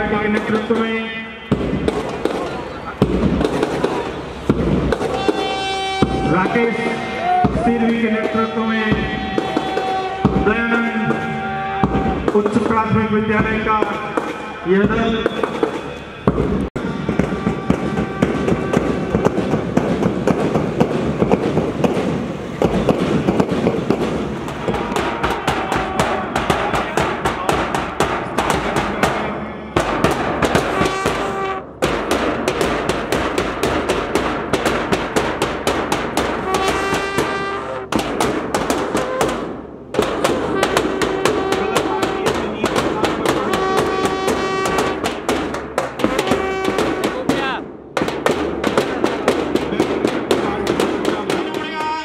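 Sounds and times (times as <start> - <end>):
snare drum: 1.5 - 52.0
bass drum: 3.0 - 3.9, 6.0 - 6.6, 7.4 - 29.2
bugle sounding held notes: 5.1 - 19.5, 24.5 - 27.7, 30.6 - 31.8, 36.4 - 38.0, 40.4 - 45.1, 46.0 - 47.6.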